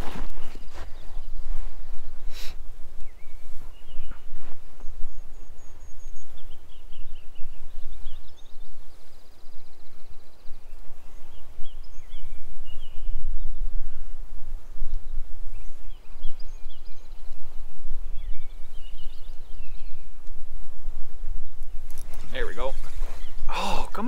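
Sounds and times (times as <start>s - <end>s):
wind buffeting microphone: 0.0s - 24.0s
bird chirps: 3.0s - 14.0s, 14.6s - 20.1s.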